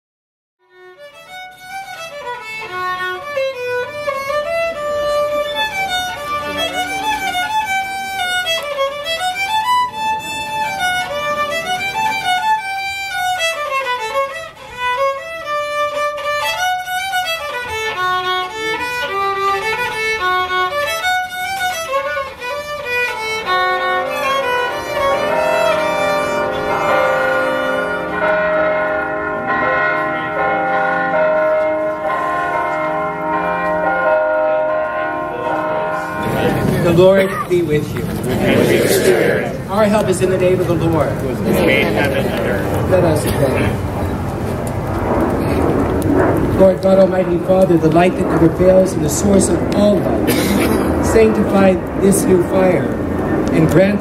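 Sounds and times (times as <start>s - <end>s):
solo violin melody: 0.6s - 37.7s
church bells ringing: 1.5s - 41.0s, 41.8s - 54.0s.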